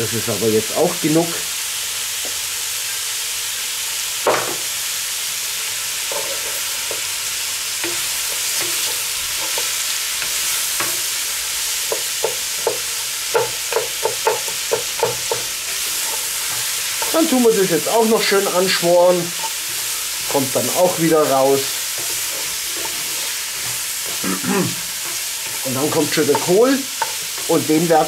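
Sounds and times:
vegetables sizzling in oil: 0:00.0 - 0:28.0
wooden spatula knocking pot: 0:11.9 - 0:17.2, 0:25.0 - 0:27.5.

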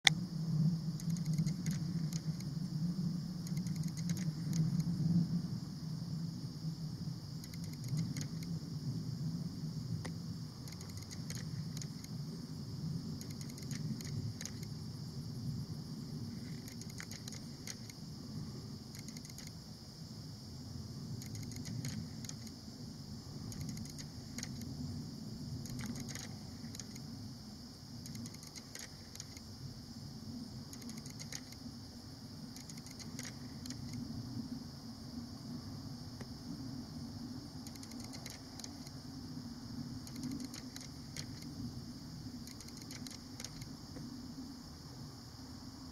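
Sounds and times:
constant high-pitched hum: 0:00.0 - 0:45.9
faint clicks: 0:01.0 - 0:02.5, 0:03.4 - 0:04.9, 0:07.4 - 0:08.5, 0:10.0 - 0:12.2, 0:13.2 - 0:14.8, 0:16.4 - 0:18.0, 0:18.9 - 0:19.6, 0:21.1 - 0:22.6, 0:23.5 - 0:24.7, 0:25.6 - 0:27.1, 0:28.0 - 0:29.5, 0:30.7 - 0:31.6, 0:32.5 - 0:34.0, 0:37.6 - 0:39.0, 0:40.0 - 0:41.5, 0:42.4 - 0:44.1.

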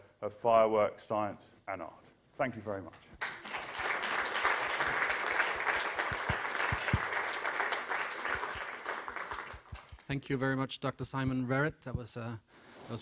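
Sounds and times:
audience applauding: 0:03.2 - 0:10.1.

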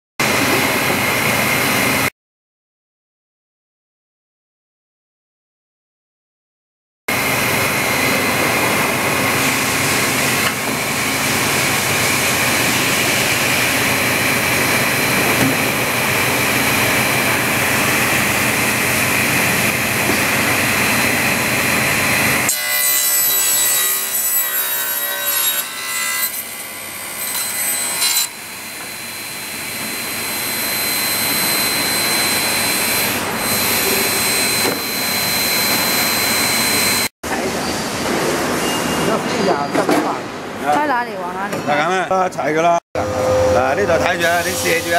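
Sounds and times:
table saw cutting plywood: 0:00.2 - 0:02.1, 0:07.1 - 0:38.6, 0:43.0 - 0:44.9.

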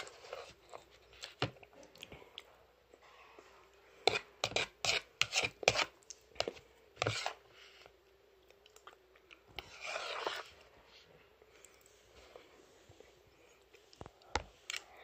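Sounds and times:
faint steady hum: 0:00.0 - 0:15.0
metal spoon scraping dessert: 0:04.0 - 0:07.5, 0:09.5 - 0:10.7.

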